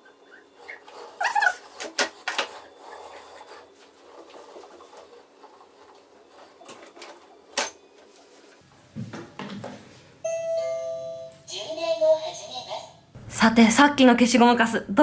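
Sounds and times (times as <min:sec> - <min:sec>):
two-tone electronic chime: 0:10.2 - 0:11.5.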